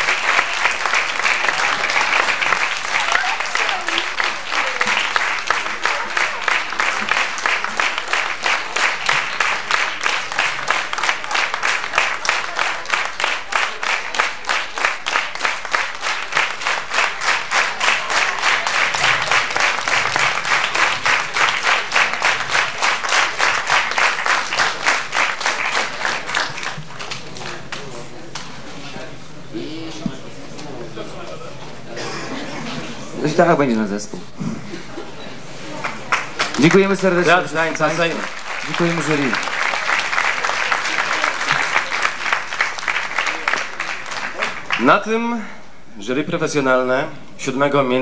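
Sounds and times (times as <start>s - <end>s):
audience clapping in rhythm: 0.0s - 28.4s, 35.8s - 45.3s.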